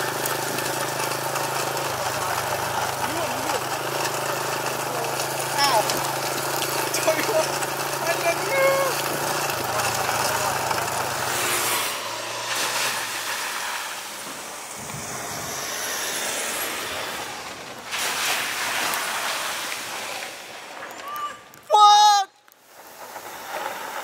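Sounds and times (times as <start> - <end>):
engine hum: 0.0 - 21.6
tyre and wind noise: 3.6 - 21.7.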